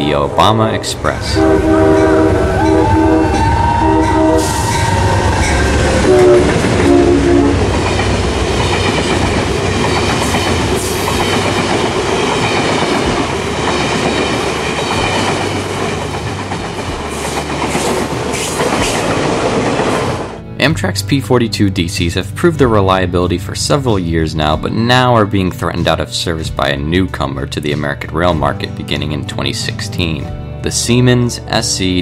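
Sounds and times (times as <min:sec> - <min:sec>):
train cars rushing past: 0:00.0 - 0:20.5
train horn: 0:01.2 - 0:07.9.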